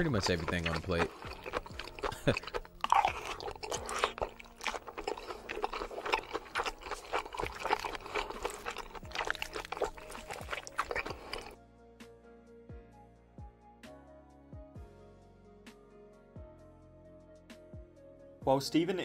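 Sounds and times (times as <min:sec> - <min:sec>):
man chewing food: 0:00.0 - 0:11.6.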